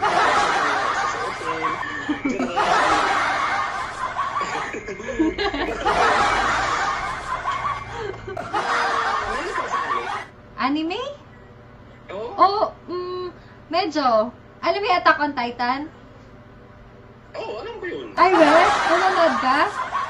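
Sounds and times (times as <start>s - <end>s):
people giggling and chuckling: 0.0s - 10.3s.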